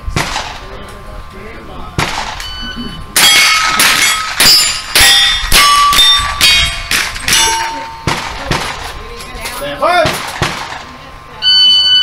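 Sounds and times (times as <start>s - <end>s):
rifle shots: 0.2s - 0.7s, 2.0s - 2.5s, 10.0s - 10.8s
steel plate target ringing: 2.3s - 8.6s.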